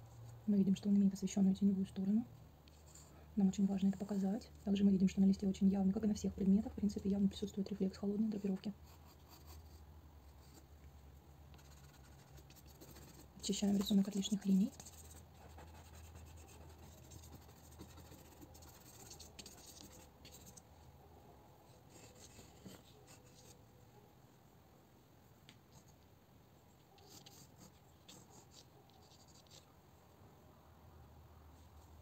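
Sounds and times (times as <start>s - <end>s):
pencil scratching on paper: 8.4s - 9.8s, 11.6s - 20.6s, 21.9s - 23.6s, 26.9s - 29.7s.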